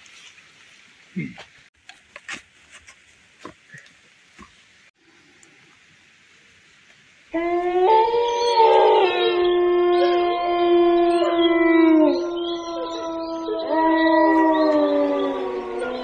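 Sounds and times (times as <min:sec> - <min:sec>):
overlapping howls: 0:07.3 - 0:16.0.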